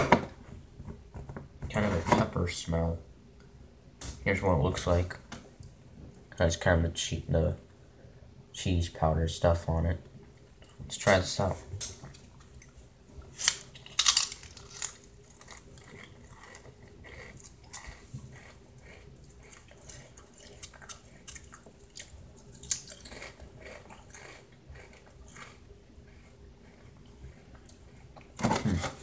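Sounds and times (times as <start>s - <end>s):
crisps crunching: 13.3s - 27.9s.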